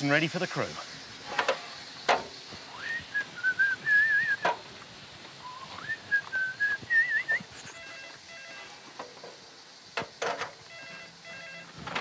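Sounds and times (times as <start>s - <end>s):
man whistling a tune: 2.7s - 4.5s, 5.4s - 8.0s.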